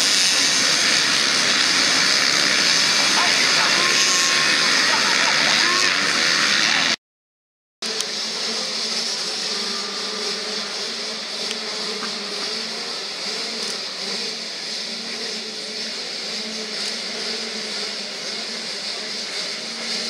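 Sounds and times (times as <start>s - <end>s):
motocross bike engines running: 0.0s - 7.0s.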